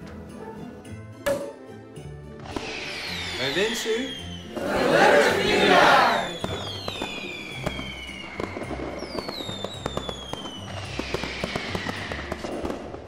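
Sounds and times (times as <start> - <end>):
fireworks crackling pops: 2.4 - 4.7, 6.1 - 13.0
fireworks whistling: 2.4 - 13.0.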